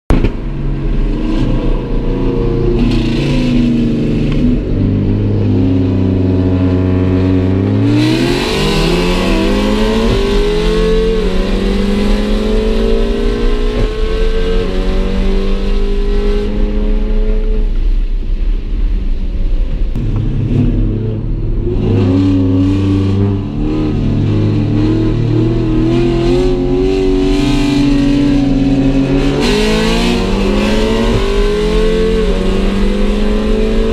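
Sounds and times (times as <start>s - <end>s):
car engine accelerating: 0.1s - 33.9s.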